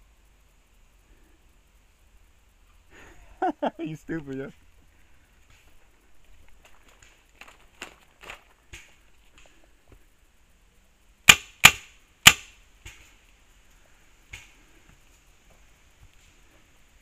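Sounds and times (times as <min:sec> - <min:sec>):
paintball marker shots: 0:11.3 - 0:13.1.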